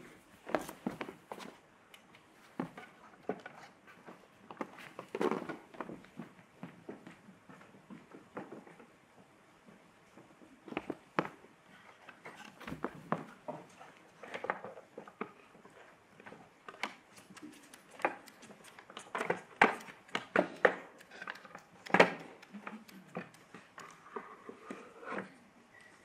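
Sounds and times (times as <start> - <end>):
footsteps on wooden floor: 12.4 - 13.6.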